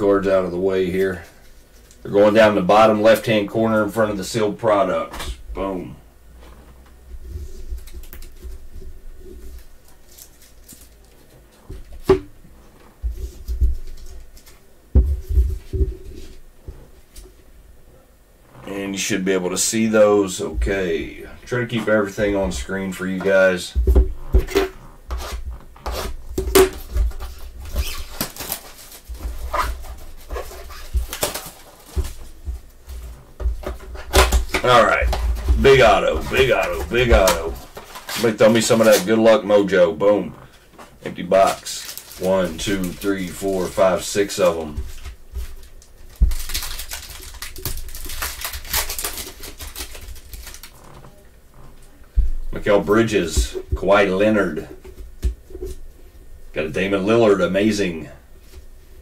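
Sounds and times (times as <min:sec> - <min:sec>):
foil wrapper crinkling and tearing: 0:09.5 - 0:11.3, 0:26.0 - 0:32.4, 0:34.0 - 0:39.2, 0:41.1 - 0:44.8, 0:45.5 - 0:51.2
cardboard box rustling: 0:26.6 - 0:39.1, 0:41.3 - 0:50.8.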